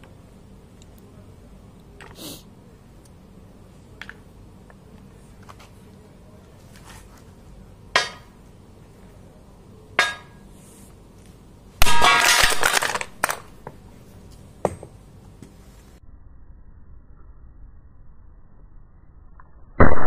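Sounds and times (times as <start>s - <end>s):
sledgehammer striking metal: 8.0s - 8.4s, 10.0s - 10.4s, 11.8s - 12.7s
crash of metal clatter: 11.8s - 13.4s.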